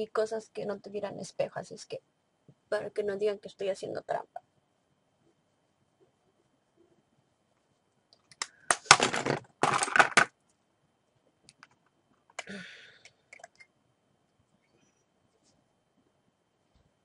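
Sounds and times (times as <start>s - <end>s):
plastic containers clattering: 8.8s - 10.3s.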